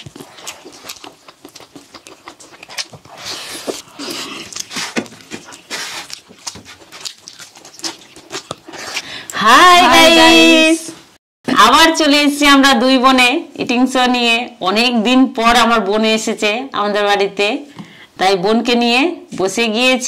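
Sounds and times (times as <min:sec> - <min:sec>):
chewing and mouth smacks: 0:00.0 - 0:09.4.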